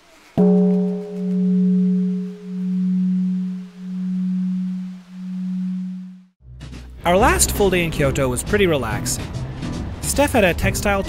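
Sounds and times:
deep bell ringing: 0.4s - 6.3s.

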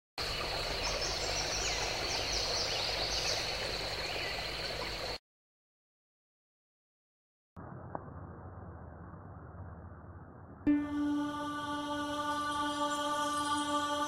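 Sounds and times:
steady high drone: 10.7s - 14.0s
birds chirping: 10.8s - 14.0s.

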